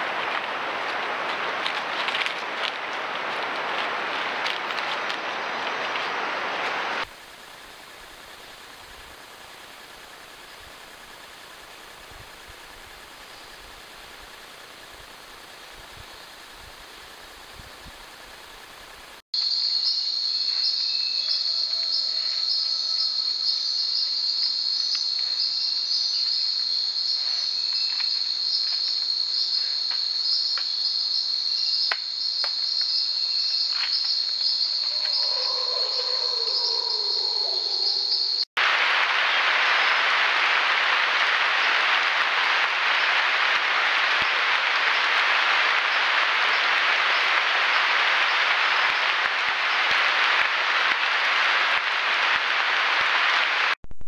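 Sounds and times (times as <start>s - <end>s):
steady hiss: 0.0s - 35.2s, 38.2s - 53.8s
insects buzzing: 3.2s - 38.5s.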